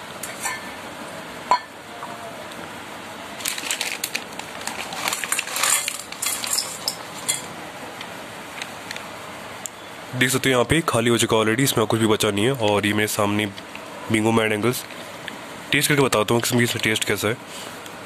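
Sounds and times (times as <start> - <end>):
chips clinking into metal bowl: 3.4 - 7.5.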